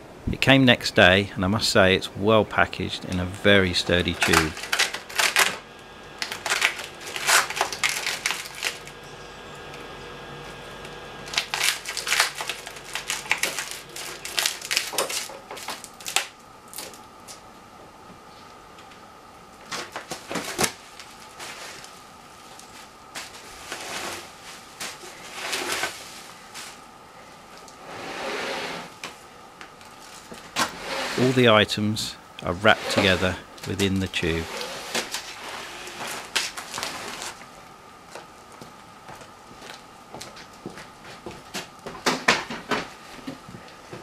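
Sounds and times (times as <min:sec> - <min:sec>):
packing tape tearing and crinkling: 0:04.0 - 0:05.6, 0:06.2 - 0:09.0, 0:11.2 - 0:17.4, 0:19.7 - 0:26.8, 0:32.9 - 0:37.5.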